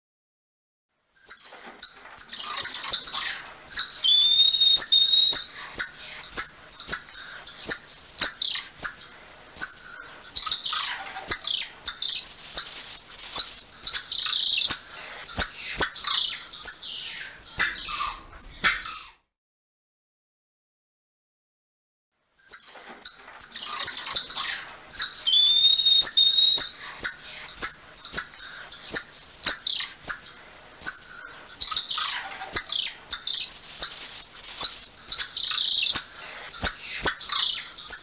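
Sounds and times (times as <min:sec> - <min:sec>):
monkey chirps and twitters: 0:01.1 - 0:19.2, 0:22.4 - 0:38.0
monkey whistled notes: 0:04.1 - 0:05.4, 0:12.2 - 0:13.7, 0:25.3 - 0:26.7, 0:33.5 - 0:35.0.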